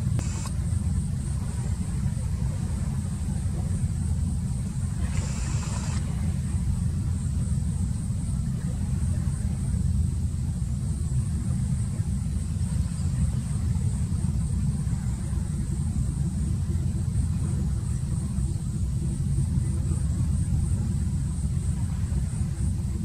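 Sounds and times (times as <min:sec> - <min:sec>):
boat engine rumbling: 0:00.0 - 0:23.0
brief hiss: 0:05.0 - 0:06.1.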